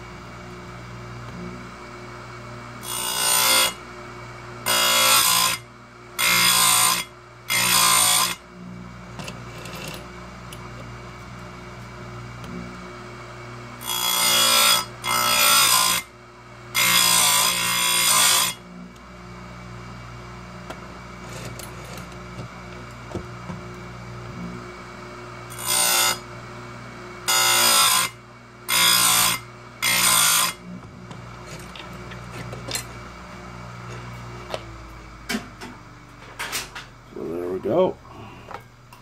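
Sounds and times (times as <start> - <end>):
grinder motor humming: 0.0 - 39.0
grinding wheel on chain: 9.2 - 10.0, 21.2 - 22.1.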